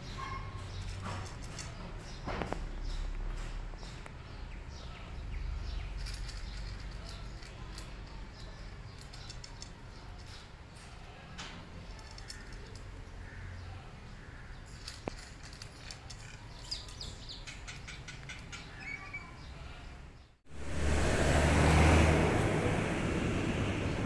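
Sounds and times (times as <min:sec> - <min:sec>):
faint bird chirps: 0:00.0 - 0:00.9, 0:16.5 - 0:19.9.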